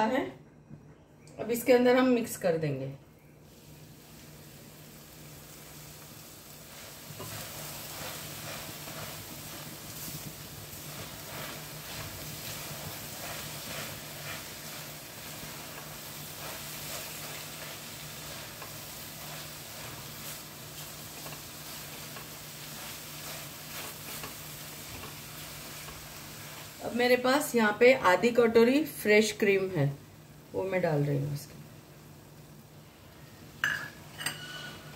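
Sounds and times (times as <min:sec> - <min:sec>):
coconut sizzling in pan: 0:03.4 - 0:34.9
spatula scraping pan: 0:06.7 - 0:26.8, 0:34.1 - 0:34.9.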